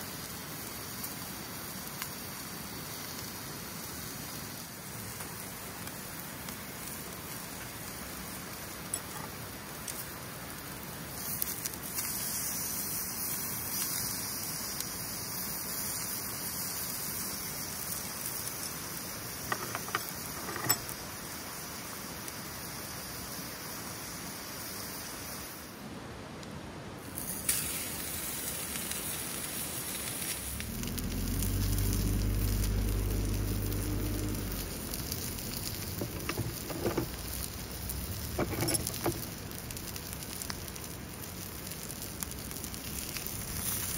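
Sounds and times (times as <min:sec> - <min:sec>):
meat sizzling in a skillet: 0:00.0 - 0:25.8, 0:27.1 - 0:43.9
wood fire crackling and popping: 0:04.6 - 0:21.4, 0:27.4 - 0:43.9
low hum: 0:30.4 - 0:39.8.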